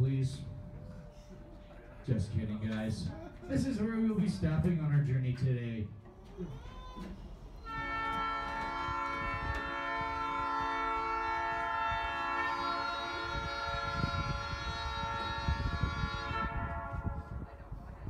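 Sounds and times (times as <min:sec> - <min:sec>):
locomotive air horn blast: 0:07.6 - 0:17.8.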